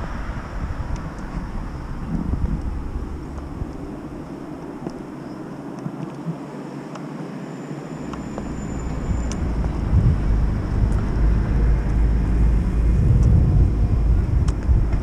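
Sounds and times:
wind rumbling on microphone: 0.0s - 7.4s, 8.0s - 15.0s.

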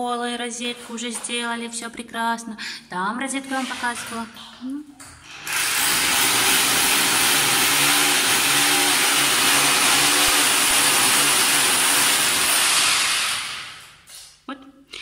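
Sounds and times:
electric drill boring into wall: 5.3s - 14.1s.

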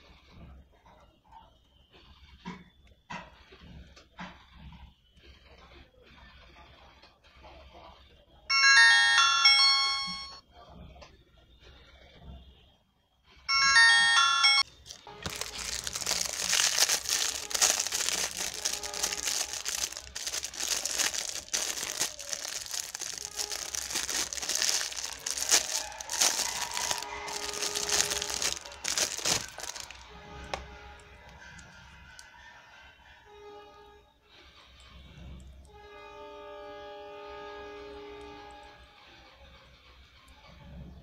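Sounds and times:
phone electronic tone: 9.7s - 10.4s
plastic bag crinkling: 14.7s - 31.6s.

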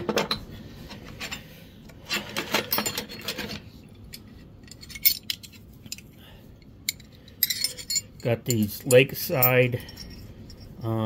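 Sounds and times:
metal wrenches clinking: 2.0s - 6.1s, 6.8s - 10.8s.

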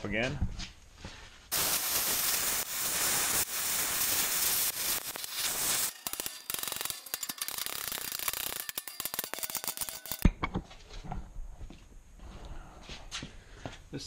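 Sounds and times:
gas torch hissing: 1.5s - 8.6s
flame crackling on steel: 1.5s - 10.2s.

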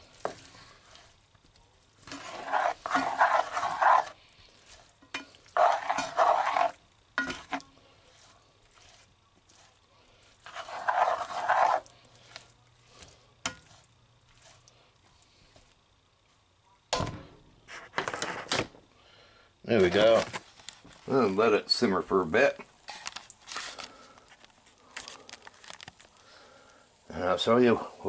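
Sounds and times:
spoon scraping frying pan: 2.0s - 14.6s.

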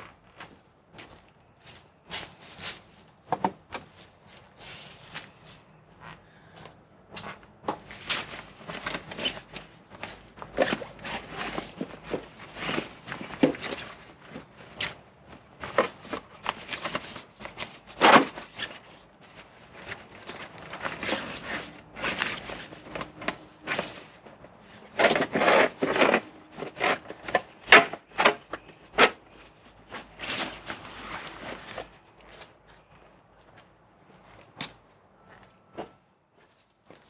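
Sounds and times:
panel and bag fabric rustling: 8.0s - 32.4s.

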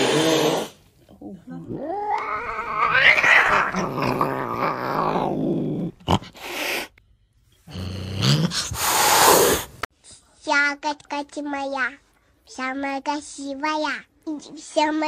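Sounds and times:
kittens growling: 1.6s - 7.0s, 7.7s - 9.9s
kitten hissing: 6.2s - 7.0s, 8.1s - 9.9s.

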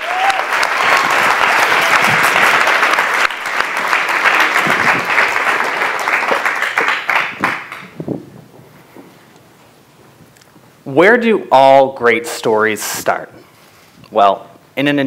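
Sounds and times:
audience applauding: 0.0s - 8.0s.

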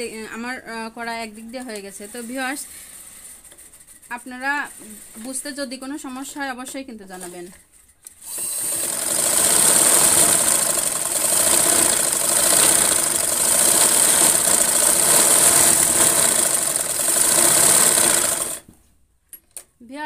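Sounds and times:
sewing machine stitching: 8.2s - 18.7s.

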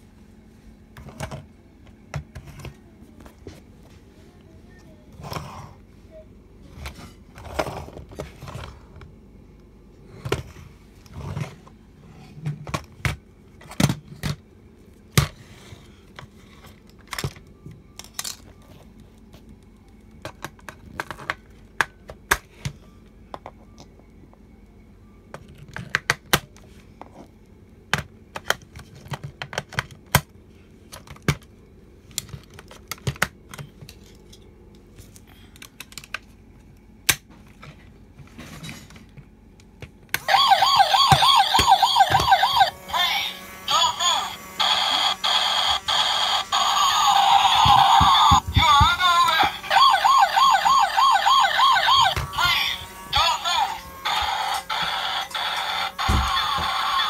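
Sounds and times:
plastic toy car clicks and knocks: 28.0s - 30.3s, 35.6s - 36.3s.

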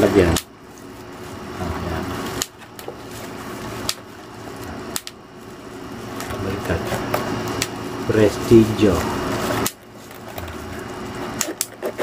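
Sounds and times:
carrying case rubbing and rustling: 9.2s - 12.0s.

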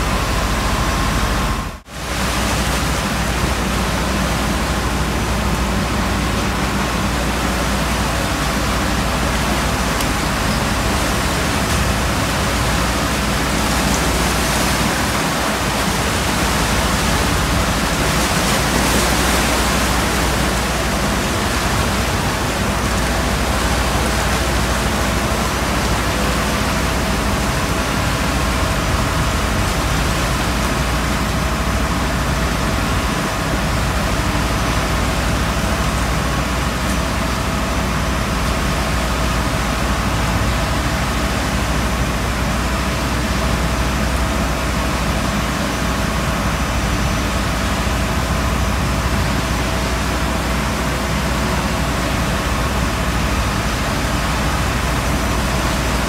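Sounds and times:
steady low rumble: 0.0s - 56.0s
water sloshing across steel deck: 0.0s - 56.0s.

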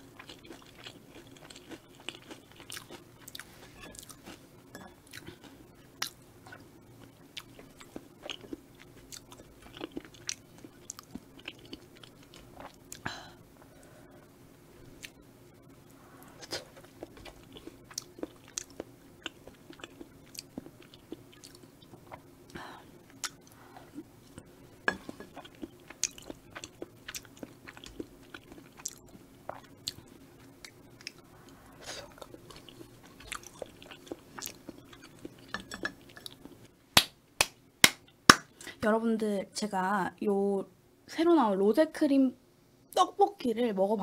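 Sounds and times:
chewing and wet mouth sounds: 0.0s - 13.1s, 16.2s - 36.6s
faint steady hum: 0.0s - 44.0s.

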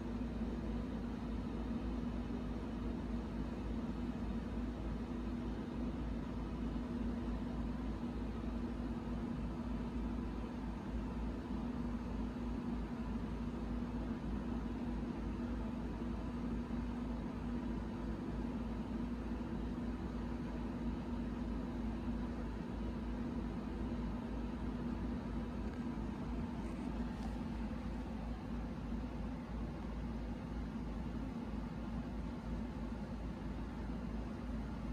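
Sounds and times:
low mechanical hum: 0.0s - 34.9s.

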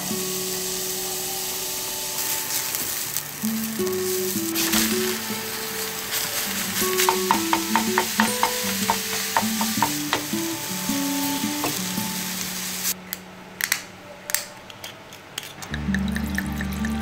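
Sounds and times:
meat sizzling in a frying pan: 0.0s - 13.0s
background music: 0.0s - 17.0s
wooden spoon stirring: 4.5s - 10.3s.

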